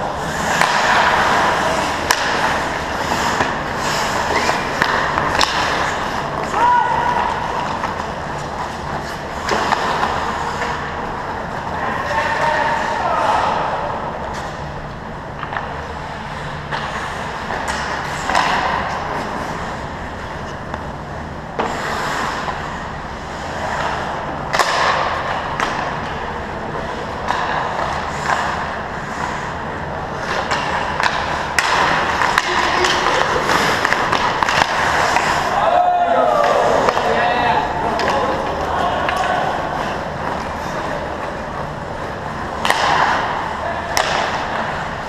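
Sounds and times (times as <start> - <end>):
skate blades scraping ice: 0.0 - 13.7, 15.5 - 45.0
sticks and puck clacking: 0.0 - 45.0.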